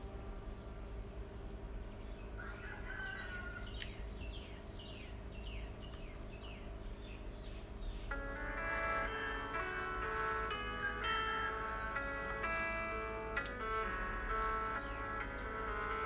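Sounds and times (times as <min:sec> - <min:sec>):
bird chirping: 0:00.0 - 0:16.0
low hum: 0:00.0 - 0:16.0
music with chime tones: 0:08.1 - 0:16.0.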